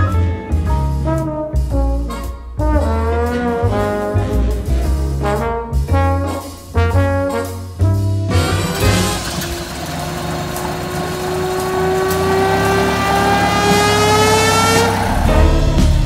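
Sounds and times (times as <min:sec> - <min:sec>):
jazz music with brass and bass: 0:00.0 - 0:09.5, 0:12.8 - 0:16.0.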